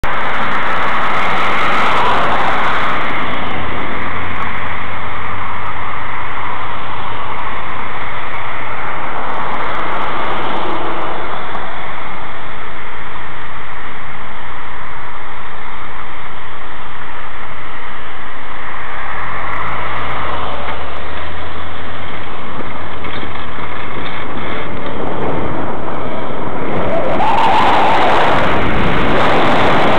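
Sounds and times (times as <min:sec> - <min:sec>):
car engines: 0:00.0 - 0:29.9
low engine hum: 0:00.0 - 0:29.9
road and wind noise: 0:00.0 - 0:29.9.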